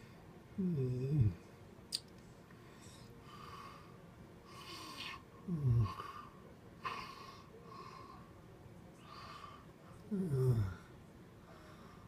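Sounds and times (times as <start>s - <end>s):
person snoring: 0.6s - 1.4s, 4.6s - 6.2s, 10.1s - 10.9s.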